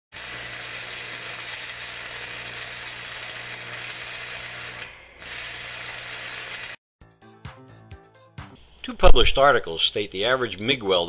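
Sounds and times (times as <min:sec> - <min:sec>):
welding arc hissing: 0:00.2 - 0:06.8.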